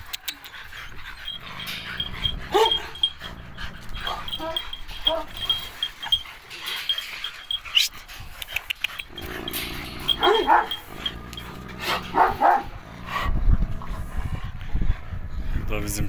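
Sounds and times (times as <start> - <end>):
dog barking deeply: 2.0 - 3.1, 10.0 - 13.2.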